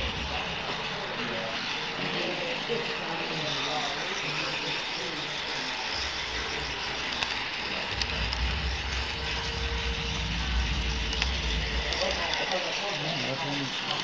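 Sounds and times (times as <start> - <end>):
low rumble: 0.0 - 1.7, 5.8 - 13.0
model trains mechanical hiss: 0.0 - 14.0.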